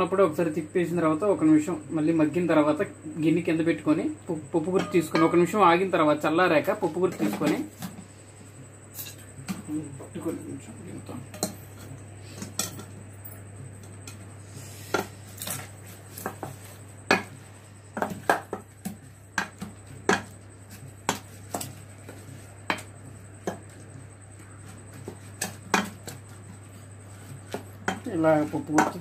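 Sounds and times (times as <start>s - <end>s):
wooden masher knocking in pot: 27.5s - 29.0s.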